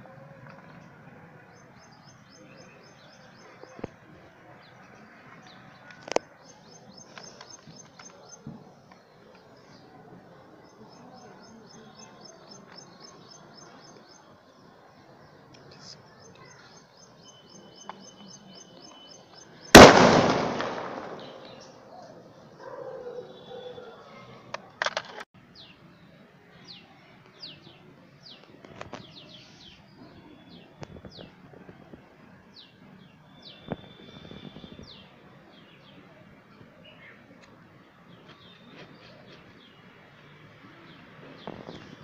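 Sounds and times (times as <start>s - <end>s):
small birds chirping: 0.5s - 19.8s, 20.7s - 24.8s, 25.5s - 42.0s
firecracker bang: 19.7s - 21.7s.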